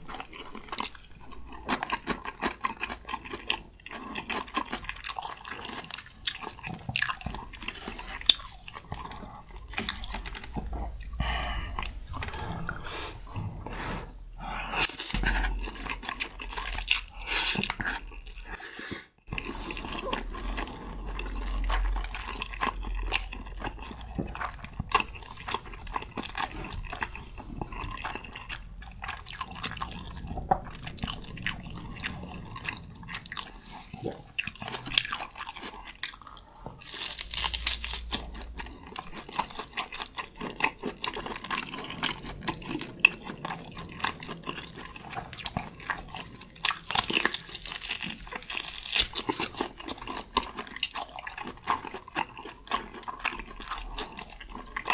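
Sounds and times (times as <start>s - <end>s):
wet chewing: 0.0s - 13.9s, 19.3s - 54.9s
slurping noodles: 7.6s - 36.6s.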